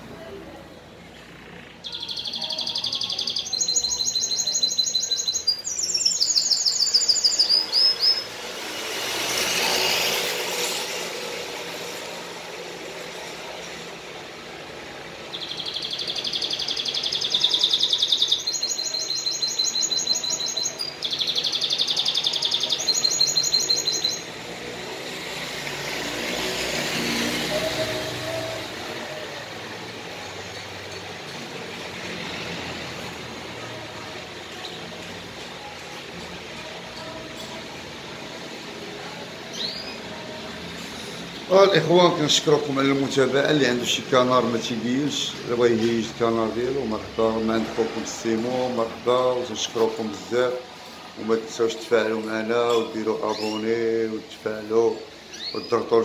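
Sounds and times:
canary singing trills: 1.0 - 11.0, 14.8 - 56.0
broad rushing noise: 7.2 - 16.4, 20.8 - 53.3.

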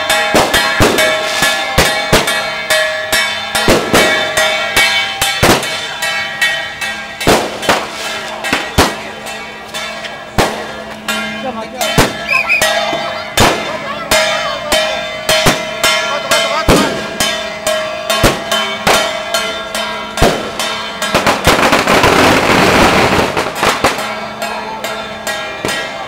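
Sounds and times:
firecrackers banging: 0.0 - 26.0.

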